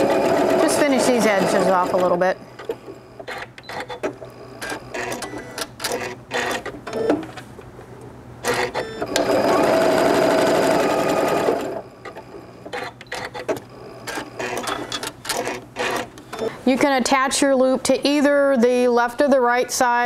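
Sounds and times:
sewing machine stitching: 0.0s - 2.4s, 8.5s - 16.1s.

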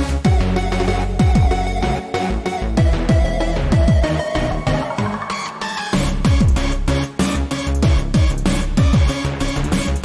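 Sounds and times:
electronic music: 0.1s - 8.2s
deep bass downward sweeps: 3.6s - 7.0s.

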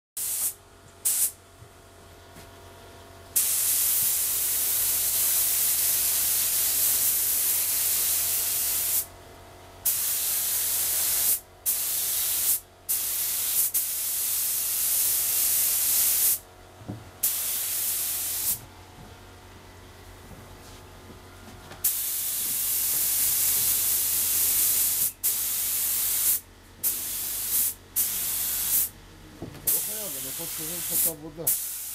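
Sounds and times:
spray gun hissing: 0.2s - 1.4s, 3.4s - 9.1s, 9.8s - 16.4s, 17.2s - 18.6s, 21.8s - 28.9s, 29.7s - 31.9s.

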